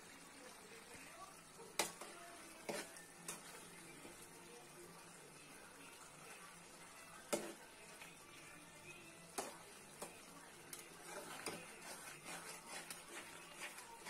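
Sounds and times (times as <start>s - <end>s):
metal spatula scraping a pan: 1.7s - 4.3s, 6.1s - 8.5s, 9.2s - 14.0s.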